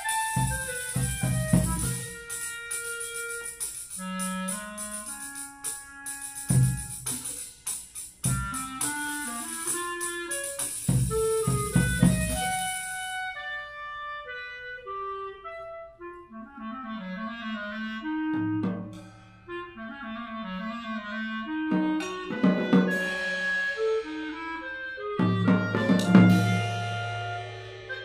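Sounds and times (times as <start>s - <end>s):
clarinet playing: 0.0s - 7.4s, 8.2s - 28.0s
cymbal wash: 0.0s - 13.3s, 26.0s - 28.0s.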